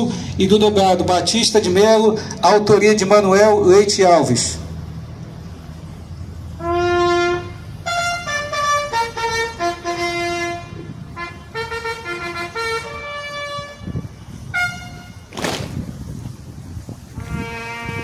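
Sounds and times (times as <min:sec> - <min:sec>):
bugle call: 0:06.6 - 0:13.9, 0:14.5 - 0:15.6, 0:17.2 - 0:18.0.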